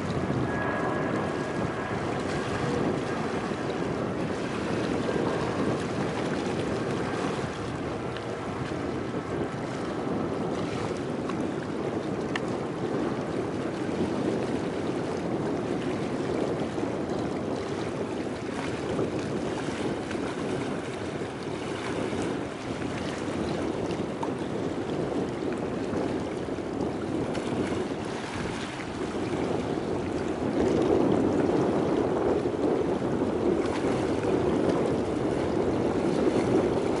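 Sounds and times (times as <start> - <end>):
wind noise on microphone: 0.0 - 37.0.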